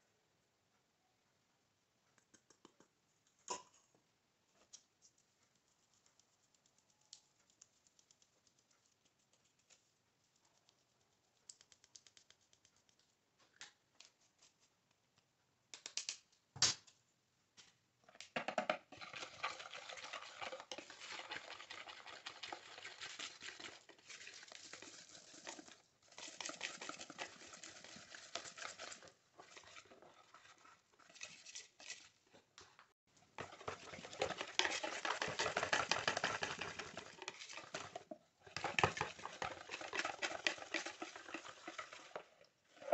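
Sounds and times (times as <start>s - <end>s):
whisk beating batter in bowl: 18.9s - 32.1s, 33.3s - 42.9s
flour sifting through sieve: 19.0s - 32.2s, 33.2s - 42.9s.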